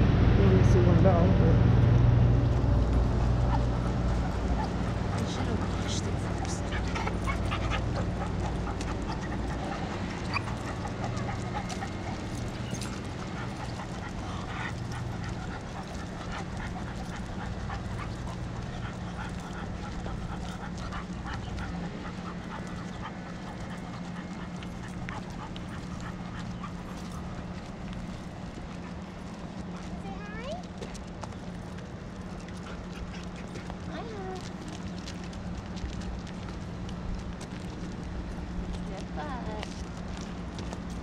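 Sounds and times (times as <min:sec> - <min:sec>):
steady low hum: 0:00.0 - 0:41.0
dog whining and panting: 0:03.1 - 0:30.6, 0:31.4 - 0:35.3.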